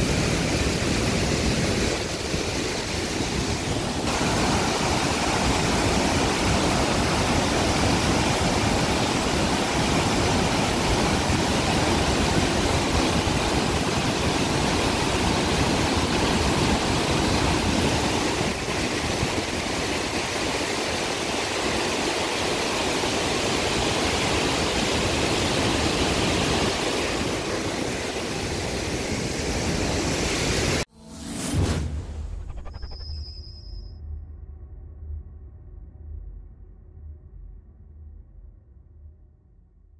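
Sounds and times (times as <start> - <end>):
rush of falling water: 0.0 - 30.9.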